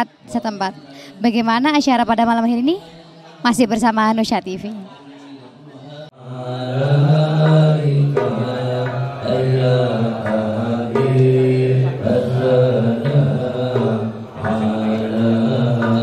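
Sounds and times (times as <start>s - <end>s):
man chanting into a microphone: 4.9s - 16.0s.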